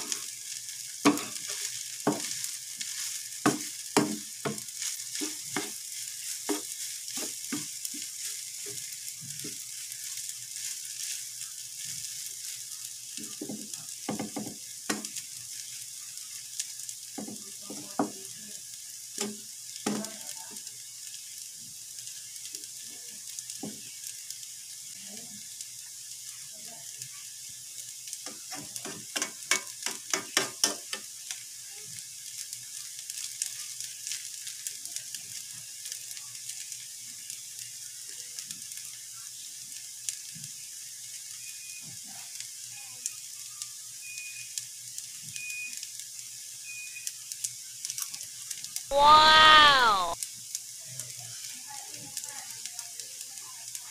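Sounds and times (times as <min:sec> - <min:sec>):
rice sizzling in a frying pan: 0:00.0 - 0:53.9
spatula scraping and knocking pan: 0:01.0 - 0:09.6.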